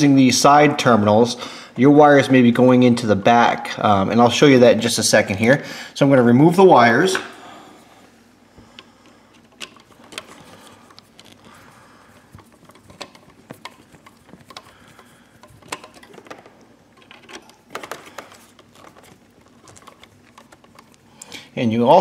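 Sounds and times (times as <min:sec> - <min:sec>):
screwdriver clicking on screws: 0:12.4 - 0:21.0.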